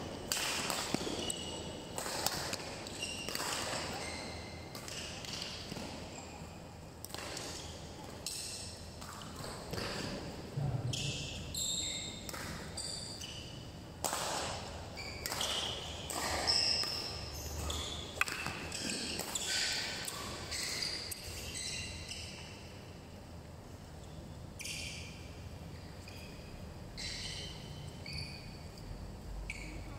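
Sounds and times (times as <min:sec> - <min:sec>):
racket striking shuttlecock: 0:00.3 - 0:04.1, 0:12.2 - 0:12.7, 0:14.0 - 0:21.2
shoes squeaking on court: 0:00.6 - 0:13.7, 0:14.5 - 0:22.9, 0:24.0 - 0:28.8.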